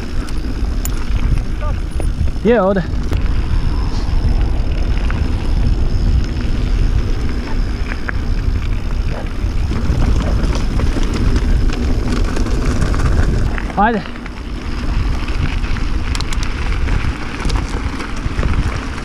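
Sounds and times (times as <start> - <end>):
bike tyres rolling on gravel: 0.0 - 19.0
wind buffeting microphone: 0.0 - 19.0
small clicks and rattles: 15.3 - 19.0.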